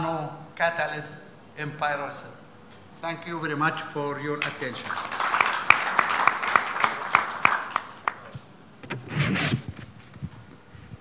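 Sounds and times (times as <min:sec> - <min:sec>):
audience applauding: 0:04.4 - 0:08.4.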